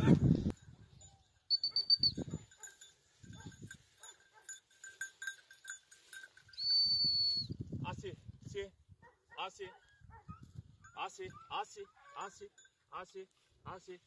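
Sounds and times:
small bell tinkling: 0.4s - 7.4s, 12.3s - 13.5s
dog whistle blasts: 1.5s - 2.2s, 6.6s - 7.5s.

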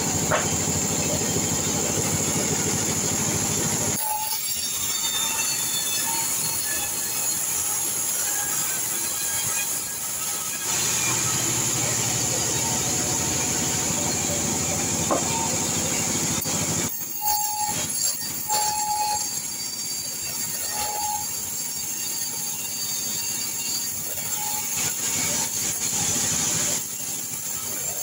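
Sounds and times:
band saw whine: 0.0s - 28.0s
brief squeals: 17.2s - 21.4s.

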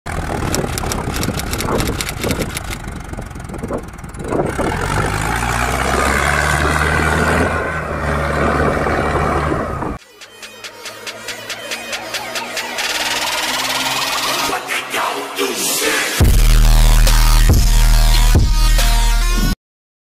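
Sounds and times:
fast ticking rattle: 0.1s - 4.9s
tractor diesel engine labouring: 0.1s - 10.0s.

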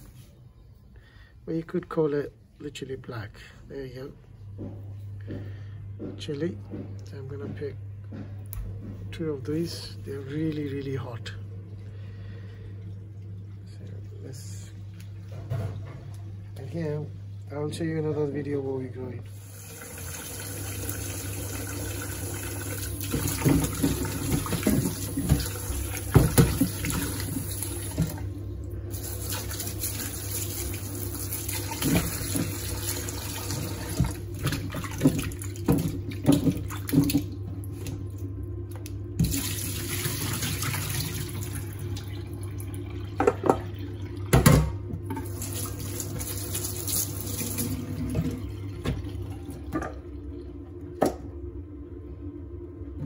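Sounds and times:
tap water running into bowl: 19.4s - 28.3s, 28.9s - 38.0s, 39.2s - 50.1s
splashes and knocks of vegetables: 33.9s - 39.4s.

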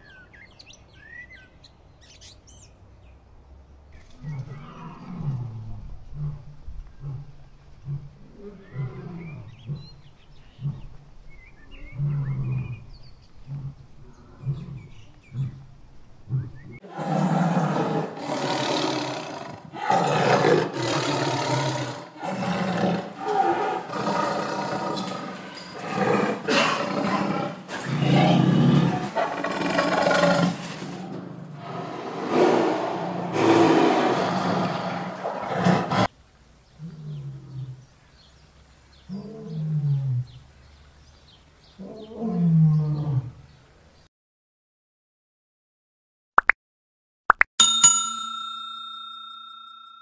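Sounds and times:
tiger growling: 16.3s - 36.1s
tiger roaring: 16.3s - 36.1s.

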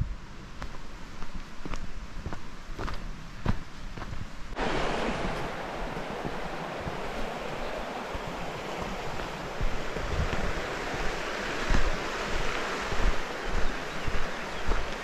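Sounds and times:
steady rushing hiss: 0.0s - 15.0s
wind buffeting microphone: 4.0s - 15.0s.

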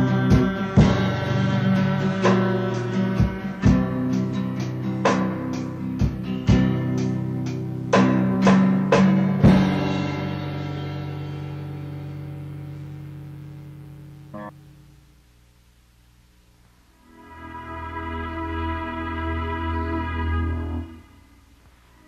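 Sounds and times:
guitar chords: 0.0s - 15.2s, 17.0s - 21.4s.

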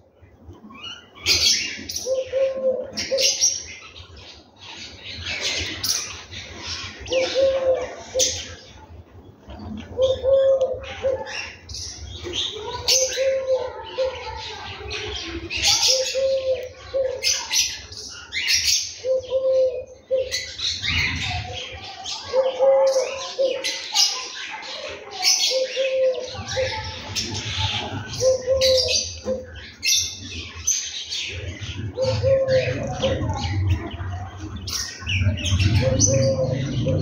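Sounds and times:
sparrows chirping: 0.0s - 37.0s
dove cooing: 1.2s - 3.7s, 6.9s - 8.8s, 9.5s - 11.6s, 12.6s - 14.4s, 15.5s - 17.6s, 19.0s - 23.9s, 25.2s - 30.0s, 31.2s - 37.0s.

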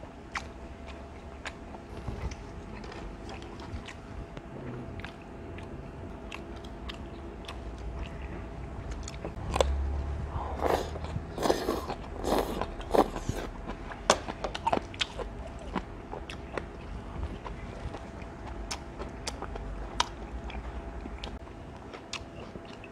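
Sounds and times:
wet chewing: 0.3s - 9.8s, 10.6s - 22.9s.

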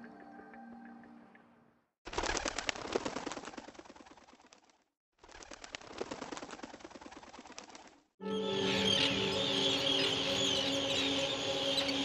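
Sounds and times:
birds calling: 8.6s - 12.0s.

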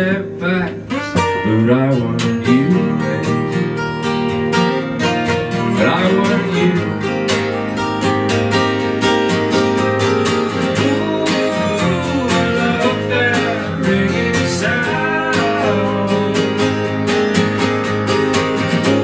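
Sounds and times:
acoustic guitars strumming: 0.0s - 19.0s
bass: 0.0s - 19.0s
sliding melody line: 4.6s - 19.0s.

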